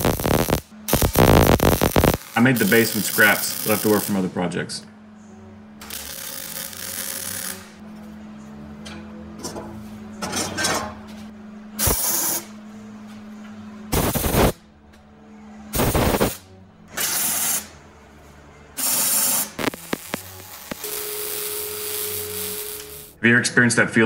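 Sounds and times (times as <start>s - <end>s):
welding arc bursts: 0.0s - 4.2s, 5.8s - 7.8s, 11.8s - 12.3s, 13.9s - 14.6s, 15.8s - 16.4s, 18.8s - 23.2s.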